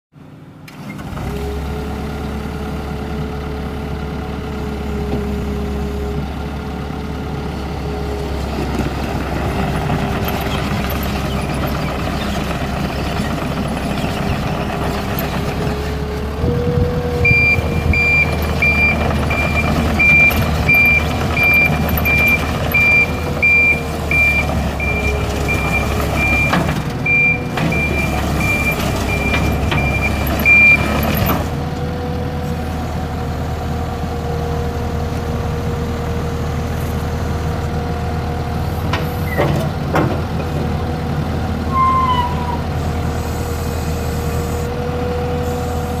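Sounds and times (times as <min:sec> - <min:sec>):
diesel engine running: 0:00.2 - 0:46.0
backup alarm beeping: 0:17.2 - 0:30.9.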